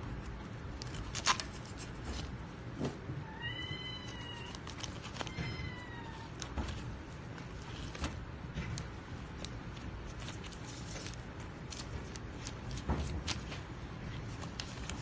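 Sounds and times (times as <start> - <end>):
paper crinkling: 0.2 - 2.4, 3.9 - 15.0
cat meowing: 3.2 - 4.6, 5.2 - 6.4.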